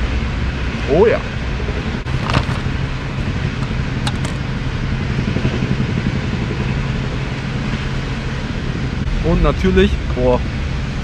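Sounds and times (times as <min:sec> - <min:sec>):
city street traffic rumble: 0:00.0 - 0:11.0.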